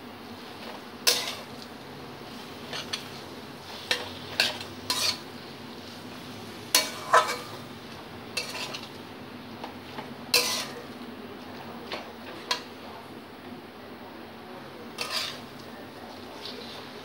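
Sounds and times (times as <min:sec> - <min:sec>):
metal spatula scraping a pan: 0:01.0 - 0:01.5, 0:02.4 - 0:05.3, 0:06.7 - 0:07.6, 0:08.4 - 0:09.0, 0:10.3 - 0:10.9, 0:14.9 - 0:15.6.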